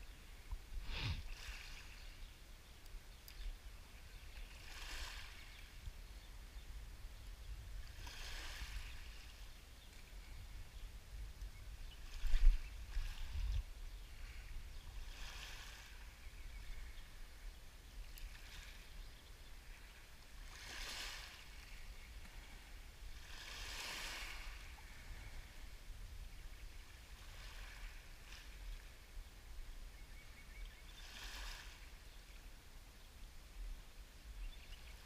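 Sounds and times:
waves lapping on pebbles: 0.9s - 2.2s, 4.2s - 5.8s, 7.8s - 9.5s, 14.1s - 16.2s, 18.1s - 19.0s, 19.8s - 25.6s, 27.0s - 29.0s, 31.0s - 31.9s.

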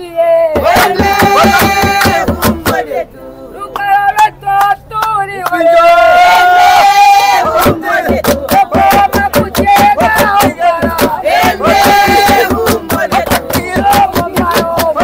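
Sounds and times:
voices singing loudly: 0.0s - 15.0s
sharp steady beat: 0.6s - 3.0s, 7.4s - 15.0s.

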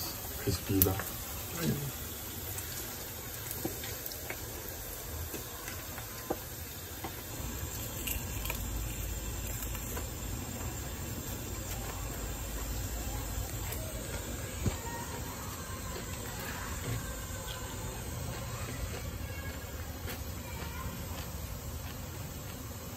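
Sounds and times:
oil sizzling with frying fish: 0.0s - 22.9s.

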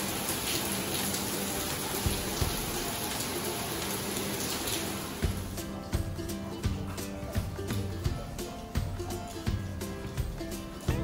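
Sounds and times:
heavy rain on pavement: 0.0s - 7.0s.

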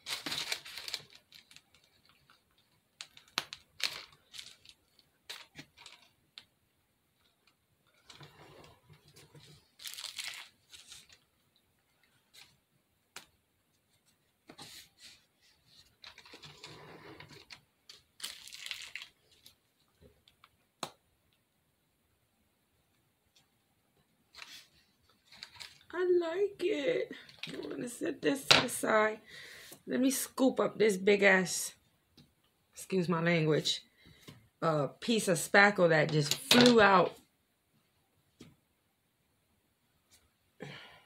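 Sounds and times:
plastic bag crinkling: 0.0s - 6.4s, 8.0s - 11.2s, 16.0s - 19.6s, 24.4s - 25.9s.

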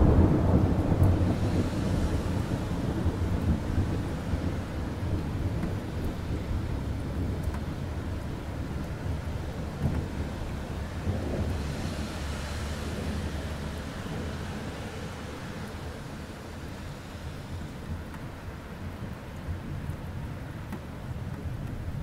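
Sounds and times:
low rolling thunder: 0.0s - 16.7s
steady rain: 0.0s - 22.0s.

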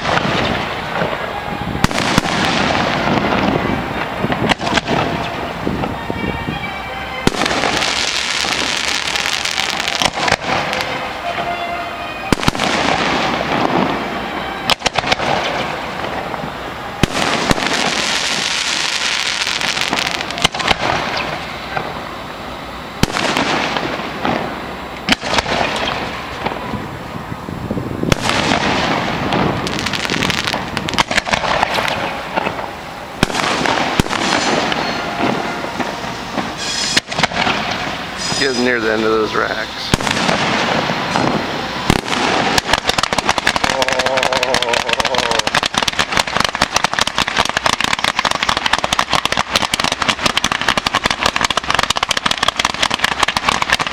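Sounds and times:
firework shells bursting: 0.0s - 6.1s, 7.2s - 27.2s, 28.0s - 53.9s
hiss of sparks: 28.2s - 53.9s.

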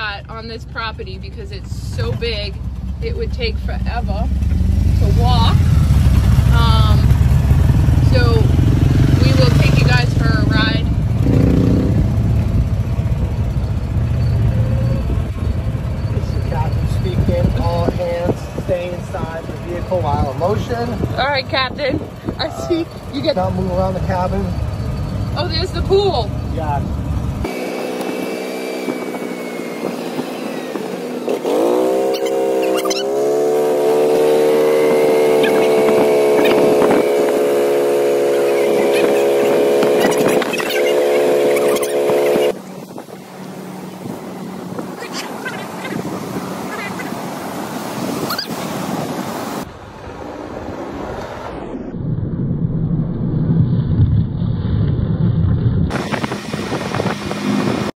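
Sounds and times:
golf cart motor running: 0.0s - 11.2s, 19.0s - 47.6s.

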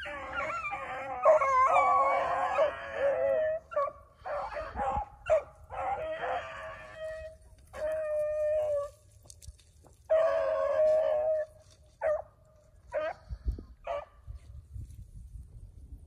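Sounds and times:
dogs baying: 0.0s - 8.9s.

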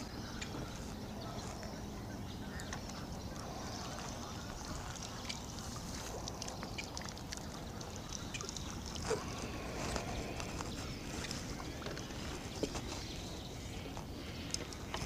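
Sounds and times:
water splashing and dripping: 3.7s - 12.7s.

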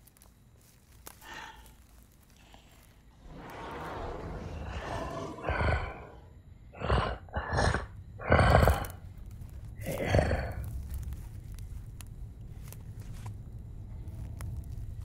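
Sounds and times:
creature heavy breathy snuffles: 3.2s - 6.2s.

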